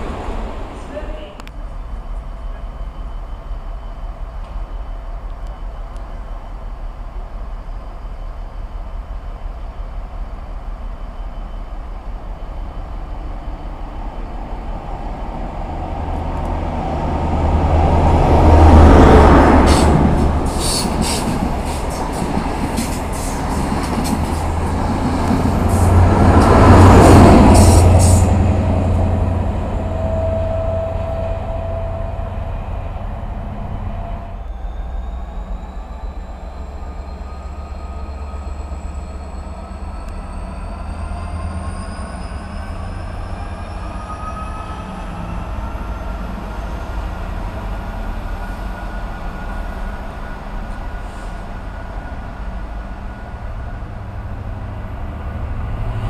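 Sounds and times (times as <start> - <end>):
diesel train engine drone: 0.0 - 56.0
train wheels clicking over rail joints: 19.6 - 28.4.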